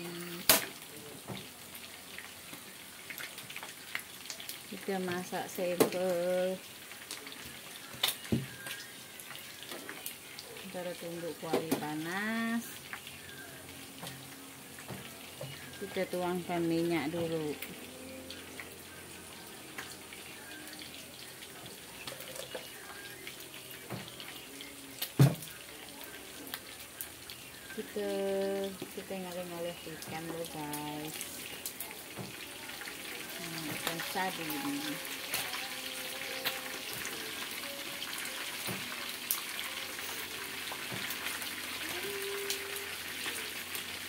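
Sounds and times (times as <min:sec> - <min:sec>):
fish sizzling in oil: 0:00.0 - 0:44.0.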